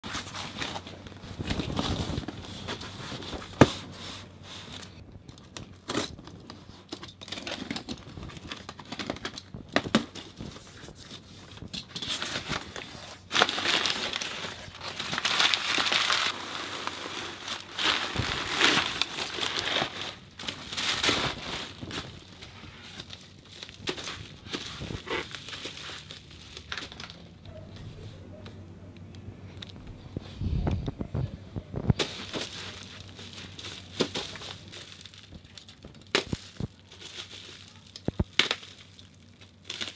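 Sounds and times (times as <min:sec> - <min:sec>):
packing tape tearing: 0:04.8 - 0:27.2, 0:32.0 - 0:39.9
cardboard box rustling: 0:07.3 - 0:27.1, 0:31.9 - 0:37.6.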